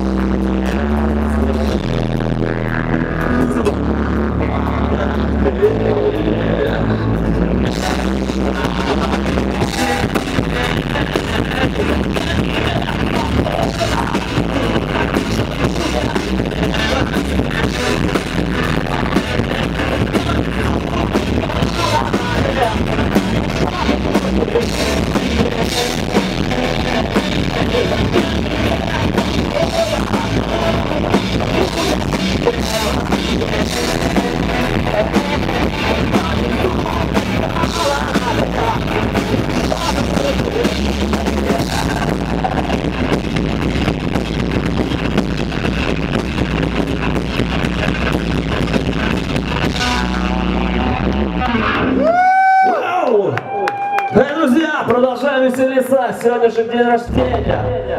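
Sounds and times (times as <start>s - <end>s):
vocalist singing: 0.0s - 45.0s, 54.4s - 57.9s
metal band playing live: 0.0s - 52.2s, 57.1s - 57.9s
drum kit and cymbals: 7.6s - 50.4s.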